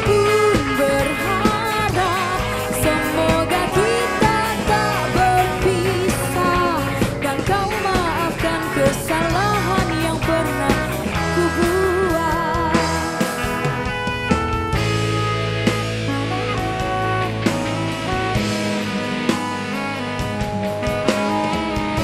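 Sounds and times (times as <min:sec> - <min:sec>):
woman singing into microphone: 0:00.0 - 0:13.4
live band playing: 0:00.0 - 0:22.0.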